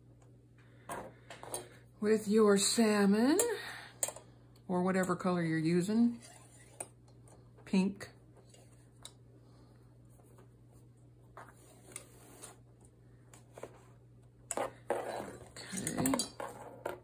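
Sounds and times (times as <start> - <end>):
loop rustling and scraping: 6.2 - 6.9, 8.3 - 9.0, 10.1 - 17.0.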